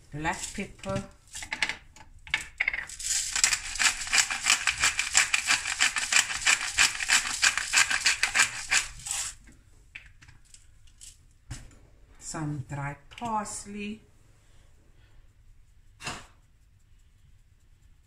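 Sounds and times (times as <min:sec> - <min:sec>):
pepper mill grinding: 0:02.5 - 0:09.4.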